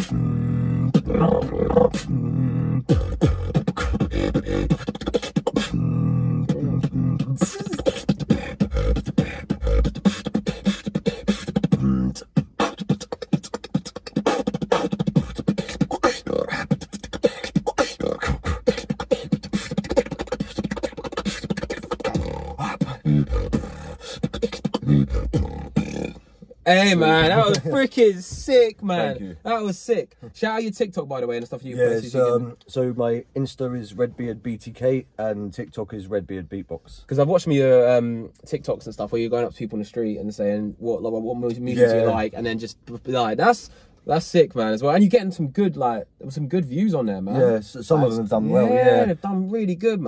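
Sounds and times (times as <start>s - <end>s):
low hummed bass tone: 0.0s - 4.8s, 5.6s - 10.1s
beatboxing: 0.0s - 30.3s, 41.3s - 43.6s, 45.8s - 49.2s.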